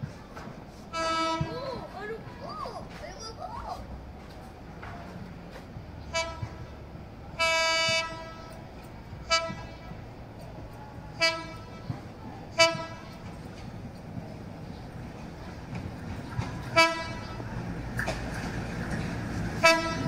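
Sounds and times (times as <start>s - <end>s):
train horn toots and blast: 0.9s - 1.6s, 6.1s - 6.7s, 7.3s - 8.6s, 9.2s - 10.0s, 11.1s - 13.4s, 16.6s - 17.5s, 19.6s - 20.0s.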